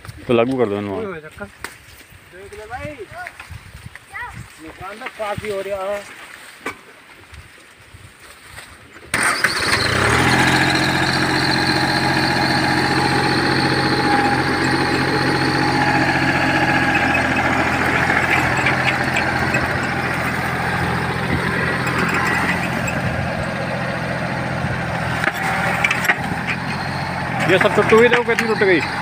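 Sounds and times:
tractor engine under load: 0:09.1 - 0:29.0.

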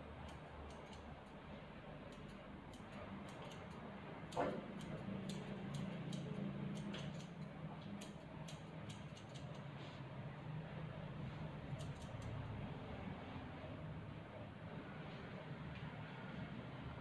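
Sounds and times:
scissors snipping: 0:00.2 - 0:01.4, 0:02.1 - 0:09.7, 0:11.7 - 0:12.4.

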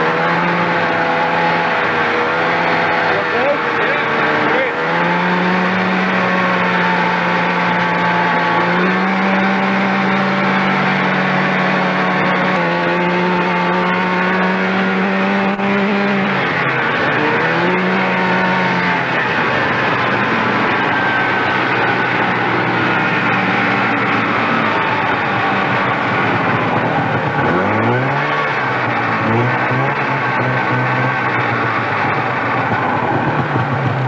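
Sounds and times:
snowmobile engine revving: 0:00.0 - 0:34.0
track and wind noise: 0:00.0 - 0:34.0.

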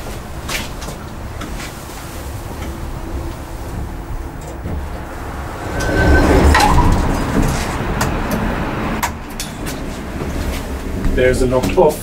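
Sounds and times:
elevator humming: 0:00.3 - 0:10.8
elevator doors sliding open: 0:01.1 - 0:10.7
short beep: 0:05.6 - 0:07.4.

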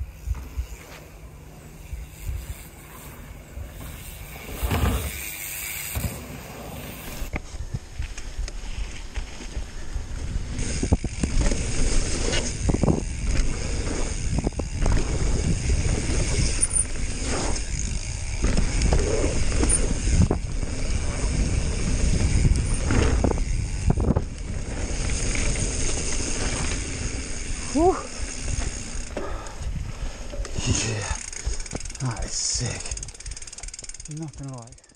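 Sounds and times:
bike knocks and rattles: 0:03.7 - 0:08.2, 0:10.6 - 0:27.2
tyre rumble on dirt: 0:03.8 - 0:05.2
wind on microphone: 0:07.1 - 0:26.8.

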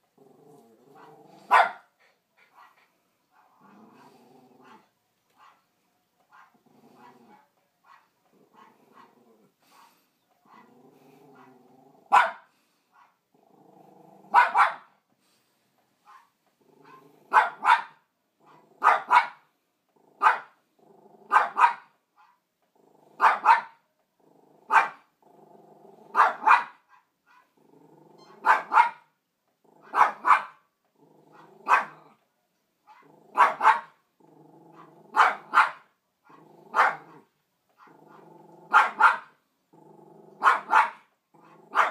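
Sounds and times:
small dog growling: 0:00.0 - 0:01.6, 0:03.4 - 0:04.9, 0:06.5 - 0:07.5, 0:08.2 - 0:12.2, 0:13.3 - 0:14.4, 0:16.6 - 0:17.4, 0:18.4 - 0:18.9, 0:19.9 - 0:21.4, 0:22.7 - 0:23.3, 0:24.2 - 0:26.4, 0:27.6 - 0:28.5, 0:29.6 - 0:30.1, 0:31.0 - 0:32.2, 0:32.9 - 0:33.6, 0:34.2 - 0:35.6, 0:36.3 - 0:39.1, 0:39.7 - 0:41.9
small dog barking sharply: 0:01.5 - 0:01.9, 0:12.1 - 0:12.5, 0:14.3 - 0:14.9, 0:16.9 - 0:18.0, 0:18.8 - 0:19.4, 0:20.2 - 0:20.6, 0:21.3 - 0:22.3, 0:23.2 - 0:23.8, 0:24.7 - 0:25.0, 0:26.1 - 0:27.0, 0:28.4 - 0:29.1, 0:29.9 - 0:30.6, 0:31.6 - 0:32.0, 0:33.3 - 0:34.0, 0:34.8 - 0:35.9, 0:36.7 - 0:37.2, 0:38.7 - 0:39.4, 0:40.4 - 0:41.1.

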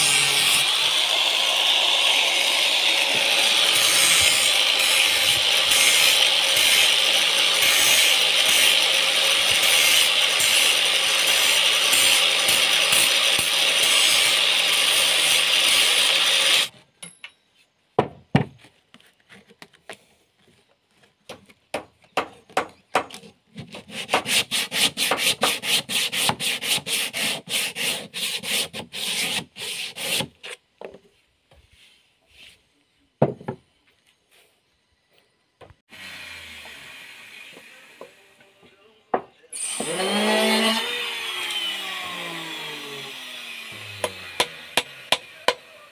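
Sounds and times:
angle grinder sanding wood: 0:00.0 - 0:16.7, 0:23.7 - 0:30.6, 0:35.9 - 0:38.4, 0:39.6 - 0:45.9.

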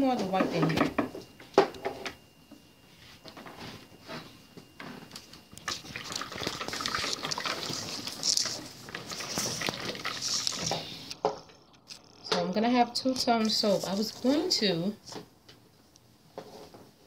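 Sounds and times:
hand whisk swishing soap batter: 0:05.6 - 0:11.1.

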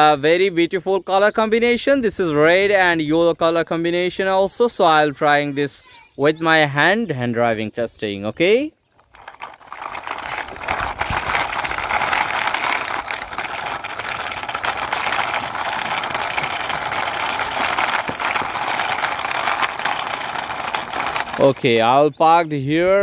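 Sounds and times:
toy car wheels rolling on concrete: 0:08.9 - 0:22.1.

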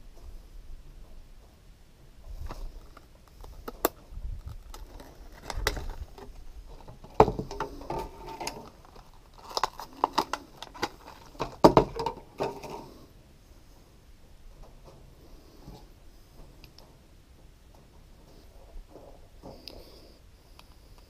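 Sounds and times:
plastic blister packs crackling: 0:02.4 - 0:12.7.

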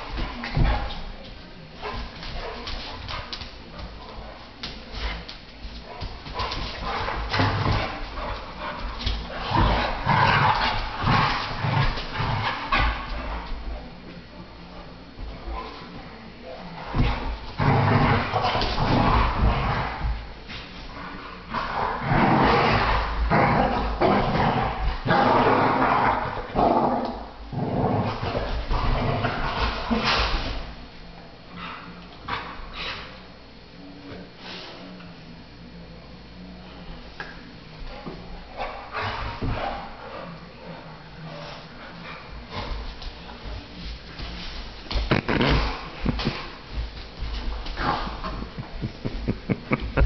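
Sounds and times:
dogs scuffling: 0:00.0 - 0:33.2, 0:36.8 - 0:50.0
dogs growling while play-fighting: 0:06.2 - 0:13.7, 0:15.4 - 0:30.9, 0:44.1 - 0:50.0.

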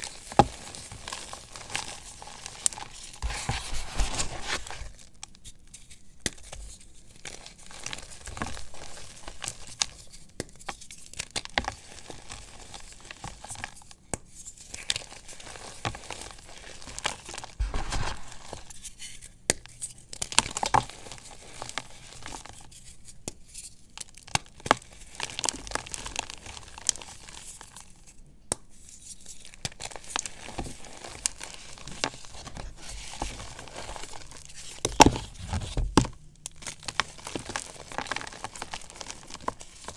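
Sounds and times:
chalk being crushed by hand: 0:15.4 - 0:18.8.

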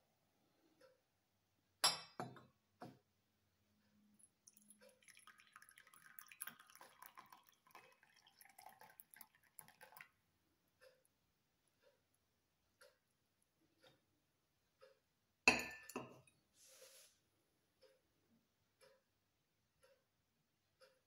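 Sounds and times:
tea pouring into a cup: 0:04.2 - 0:10.2.

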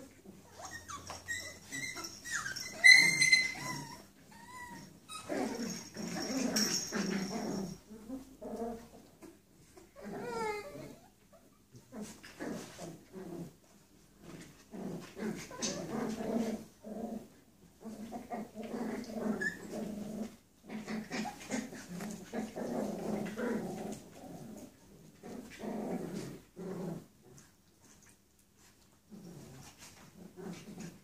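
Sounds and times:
puppies growling: 0:00.0 - 0:28.2, 0:29.1 - 0:31.0.

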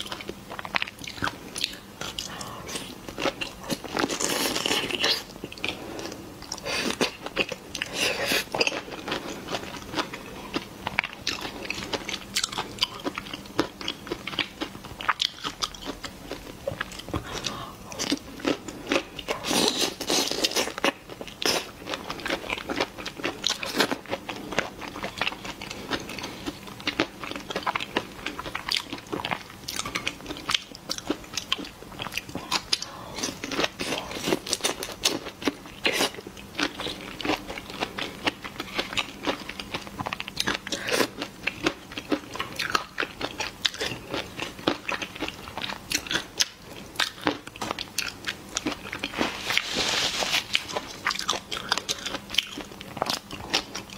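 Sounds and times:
crunching and chewing prawns: 0:00.0 - 0:53.9.

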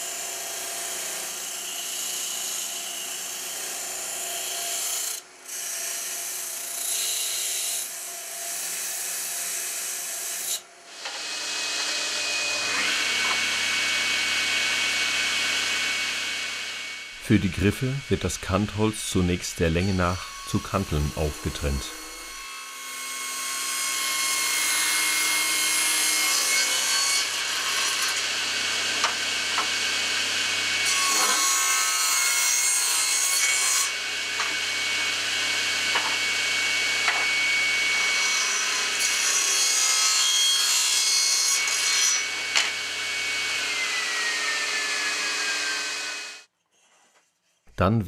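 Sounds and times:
table saw whine: 0:10.9 - 0:46.5
saw cutting wood hissing: 0:11.2 - 0:22.5.

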